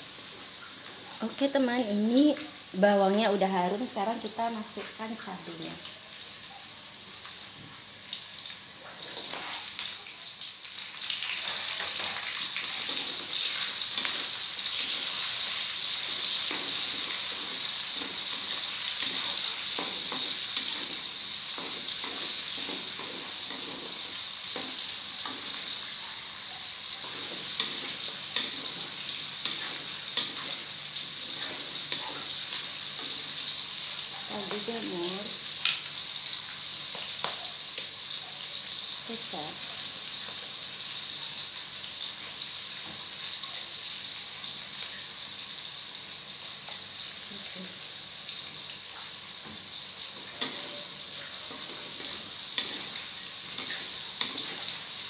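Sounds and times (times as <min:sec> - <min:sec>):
food sizzling in oil: 0:00.0 - 0:55.0.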